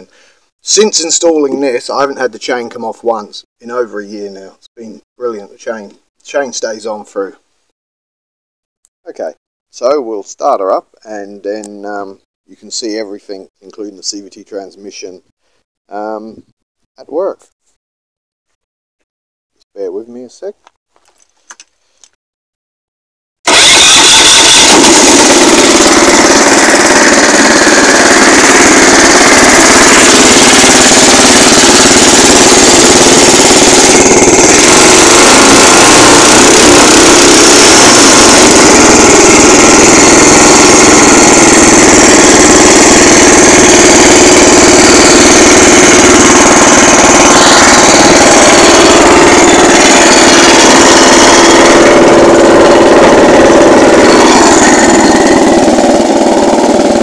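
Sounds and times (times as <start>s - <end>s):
small petrol engine running: 23.5s - 57.0s.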